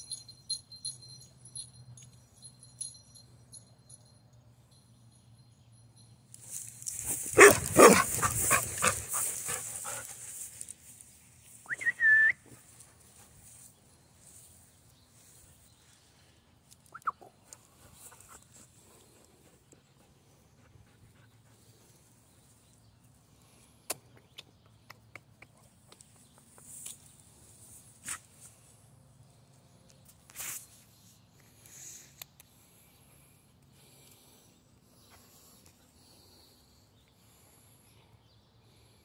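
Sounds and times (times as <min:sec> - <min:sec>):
dog barking: 0:07.4 - 0:09.0.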